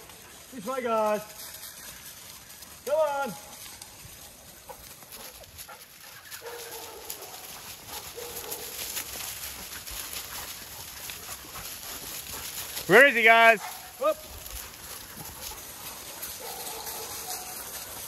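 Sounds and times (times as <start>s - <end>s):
dry leaves crackling underfoot: 0.0s - 18.0s
dogs sniffing: 4.3s - 18.0s.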